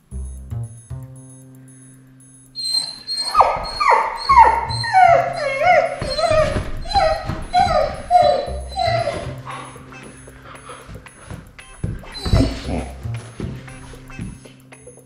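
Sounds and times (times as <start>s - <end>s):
background music: 0.0s - 15.0s
puppy whining and crying: 2.6s - 14.0s.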